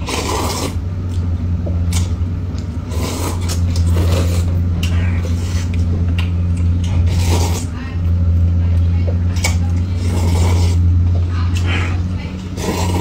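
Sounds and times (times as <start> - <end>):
people slurping noodles: 0.0 - 0.8, 2.8 - 5.8, 6.9 - 7.8, 9.6 - 10.9, 11.5 - 13.0
steady low hum: 0.0 - 13.0.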